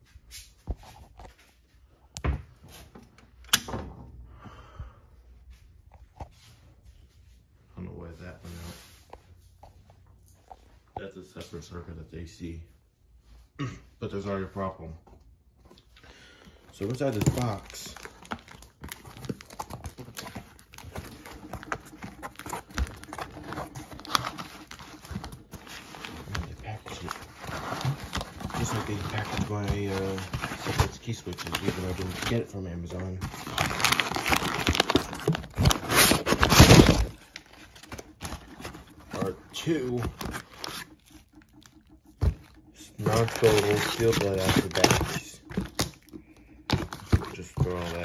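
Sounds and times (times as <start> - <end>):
foam packing rustling: 16.5 - 48.0
cardboard flaps scraping: 18.2 - 32.5.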